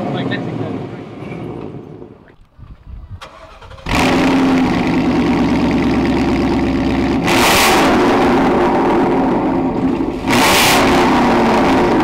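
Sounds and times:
car engine revving: 3.2 - 12.0.

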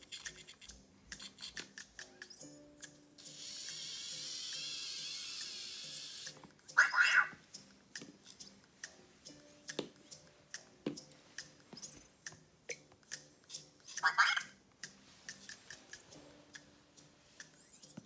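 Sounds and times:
toy robot motors whirring: 0.0 - 6.4.

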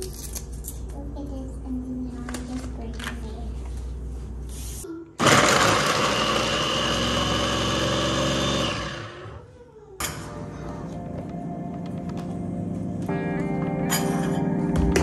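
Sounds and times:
mini food chopper whirring: 5.2 - 9.4.

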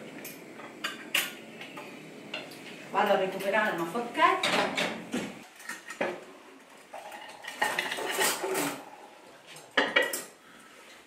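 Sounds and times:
cutlery and crockery clinking: 7.0 - 8.9, 9.6 - 10.4.

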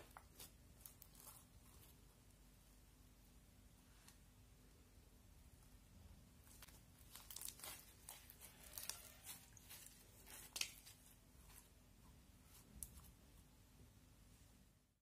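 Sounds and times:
slime crackling and popping: 6.5 - 11.1.

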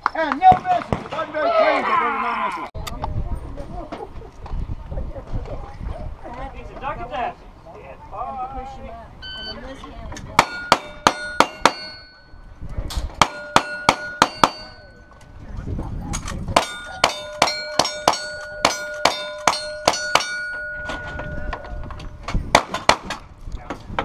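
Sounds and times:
steel plate clanging: 10.4 - 15.2, 16.2 - 23.2.

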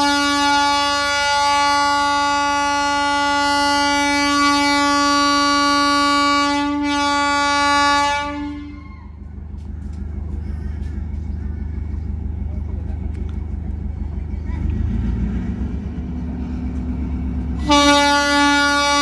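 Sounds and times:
train horn blast: 0.0 - 9.3, 16.9 - 19.0.

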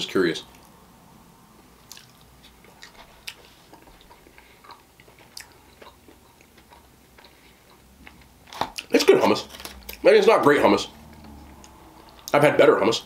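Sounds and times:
wet chewing sounds: 1.8 - 8.9, 11.0 - 12.4.

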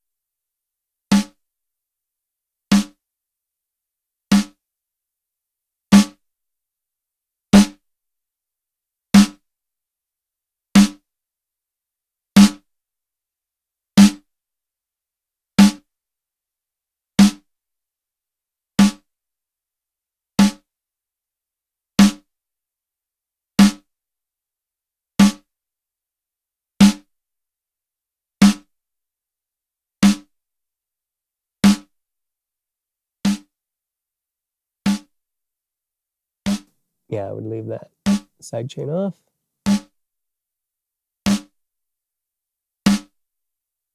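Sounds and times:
snare drum hits: 39.7 - 39.9, 41.3 - 41.5, 42.9 - 43.1.

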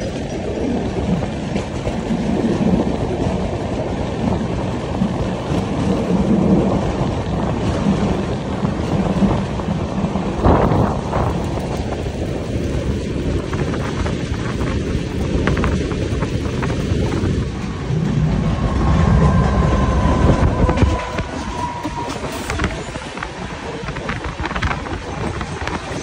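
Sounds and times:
train wheels rumbling on rail: 0.0 - 26.0
wind buffeting microphone: 0.0 - 26.0.

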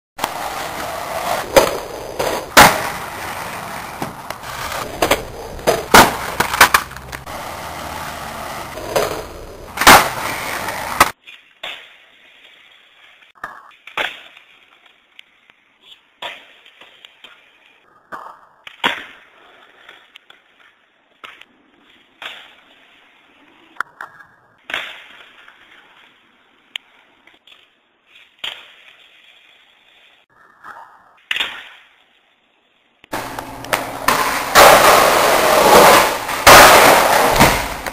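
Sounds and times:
skateboard pops and landing slaps: 0.2 - 12.0, 13.3 - 15.2, 15.8 - 21.5, 22.1 - 22.8, 23.8 - 26.0, 26.7 - 29.0, 30.5 - 32.0, 33.1 - 37.9
skateboard wheels rolling on concrete: 0.2 - 37.9.

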